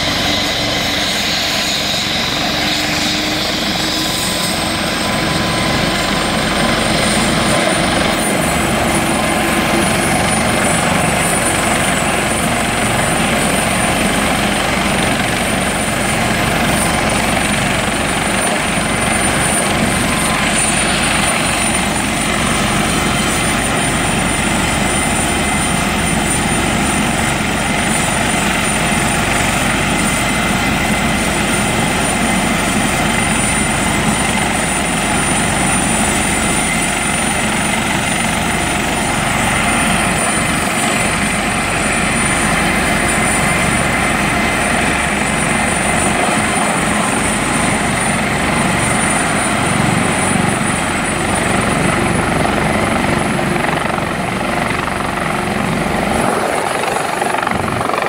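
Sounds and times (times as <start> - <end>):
helicopter rotor rushing: 0.0 - 58.0
high turbine whine: 0.0 - 58.0.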